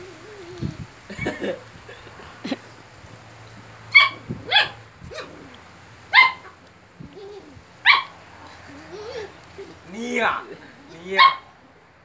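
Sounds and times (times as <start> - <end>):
puppy barking: 3.9 - 5.4, 6.1 - 6.6, 7.8 - 8.2, 11.1 - 11.6.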